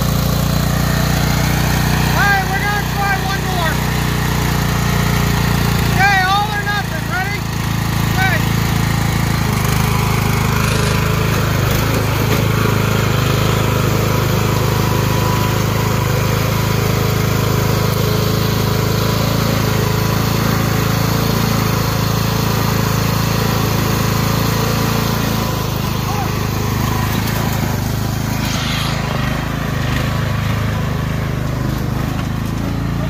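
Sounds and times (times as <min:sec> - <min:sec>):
lawn tractor engine running: 0:00.0 - 0:33.0
wheels spinning in mud: 0:00.0 - 0:33.0.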